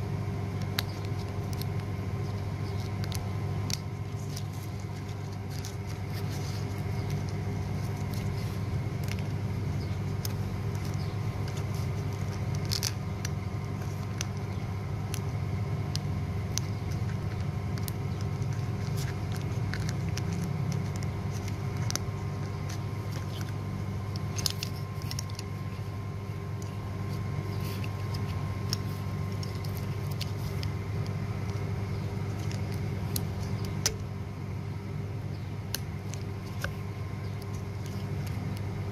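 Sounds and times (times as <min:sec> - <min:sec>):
steady low hum: 0:00.0 - 0:38.9
metal foil crinkling with clicks: 0:00.6 - 0:25.9.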